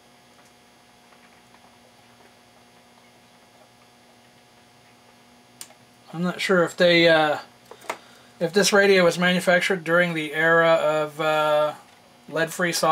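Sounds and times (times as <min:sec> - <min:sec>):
electrical mains hum: 0:00.0 - 0:12.9.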